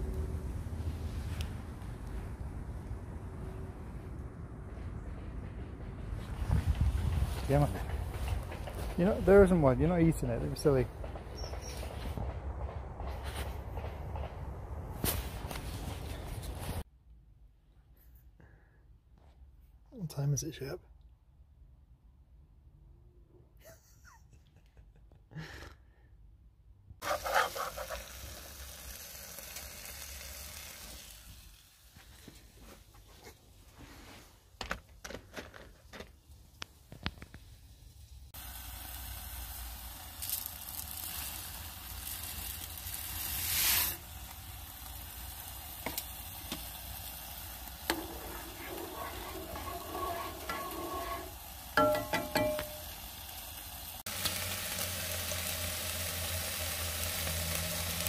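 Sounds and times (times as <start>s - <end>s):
chicken sizzling in a pan: 27.0s - 32.0s, 38.4s - 58.0s
rice poured into water: 38.4s - 45.3s
fork clicking and scraping: 47.9s - 52.7s.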